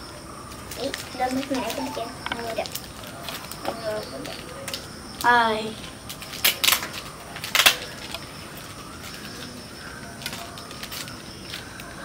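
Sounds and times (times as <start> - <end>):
gift wrap rustling: 0.5 - 4.9, 5.6 - 12.0.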